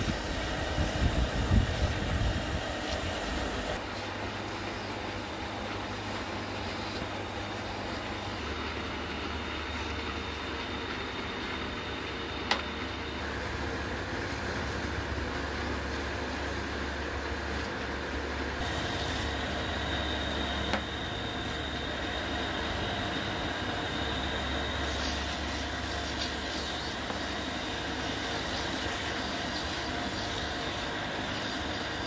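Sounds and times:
electric motor humming: 0:06.6 - 0:32.0
abrasive strip polishing wood: 0:23.6 - 0:32.0.

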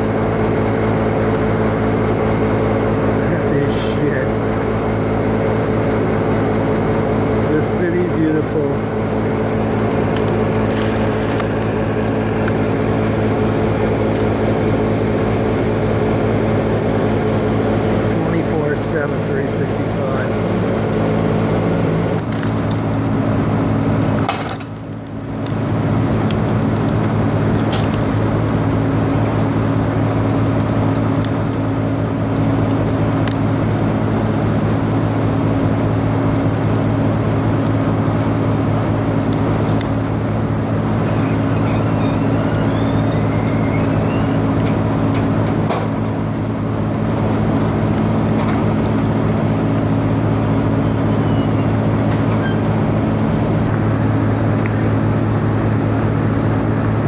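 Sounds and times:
truck engine droning hum: 0:00.0 - 0:57.0.

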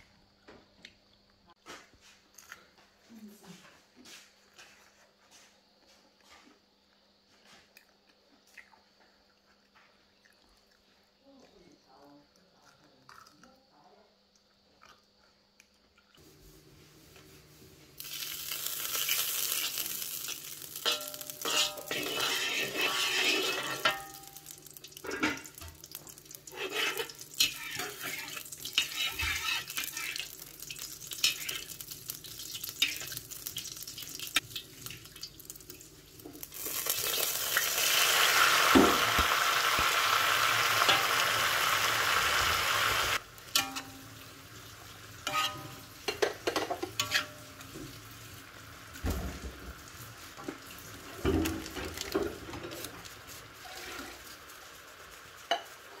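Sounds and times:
oil sizzling: 0:16.2 - 0:56.0
metal ladle scraping wok: 0:18.0 - 0:25.7, 0:26.4 - 0:30.4, 0:40.7 - 0:42.1, 0:42.7 - 0:44.3, 0:45.2 - 0:47.7, 0:51.2 - 0:54.4.

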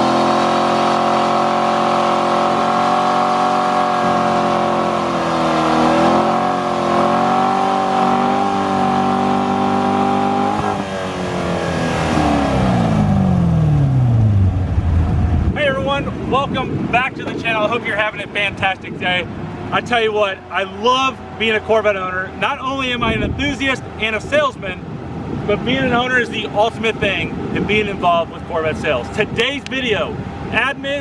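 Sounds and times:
car engine revving high: 0:00.0 - 0:15.6.

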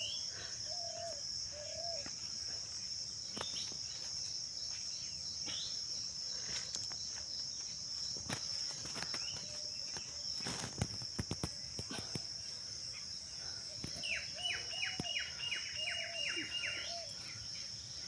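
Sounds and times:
high-pitched insect chorus drone: 0:00.0 - 0:18.0.

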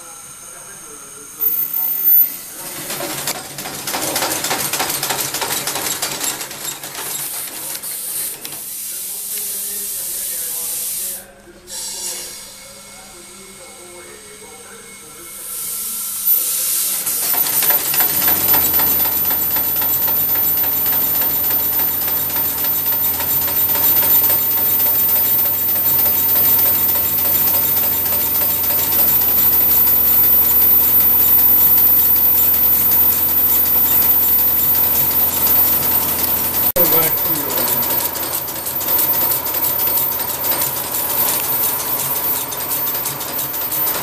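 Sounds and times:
air hiss: 0:07.8 - 0:12.5, 0:15.6 - 0:17.3.

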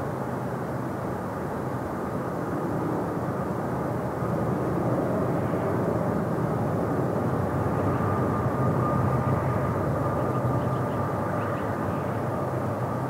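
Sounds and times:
distant freight train rumble: 0:05.2 - 0:13.0.

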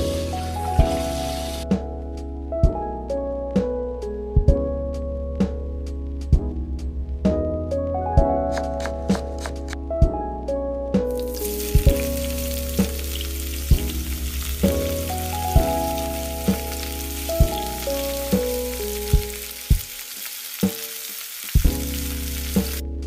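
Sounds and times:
rice sizzling in hot oil: 0:00.0 - 0:01.7, 0:11.2 - 0:22.9
instrumental music: 0:00.0 - 0:23.0.

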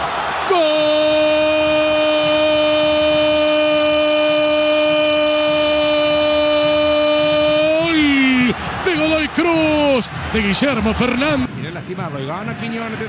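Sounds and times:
commentator's long goal cry: 0:00.5 - 0:08.9.

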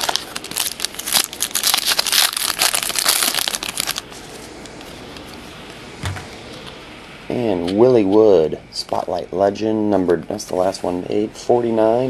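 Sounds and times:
wrapper tearing and crinkling: 0:00.0 - 0:04.0
soft thump: 0:06.0 - 0:06.4.

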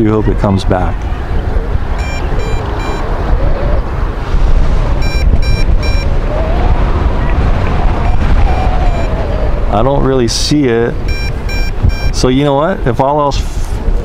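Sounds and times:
wind buffeting microphone: 0:00.0 - 0:14.0
quick warning beeps: 0:02.0 - 0:03.1, 0:05.0 - 0:06.1, 0:11.1 - 0:12.2.

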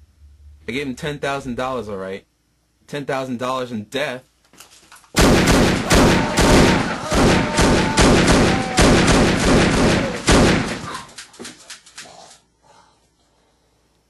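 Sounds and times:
rapid pistol gunfire: 0:05.2 - 0:11.2.

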